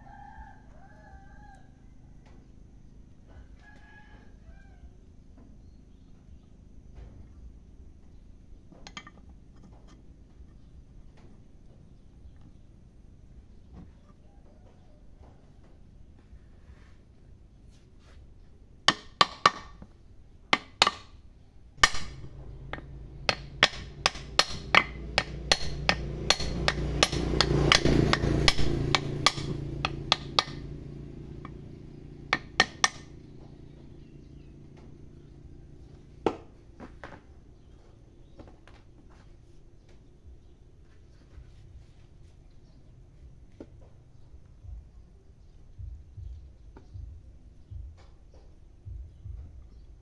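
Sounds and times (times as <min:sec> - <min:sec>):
hammer striking metal drift: 0:21.8 - 0:34.9.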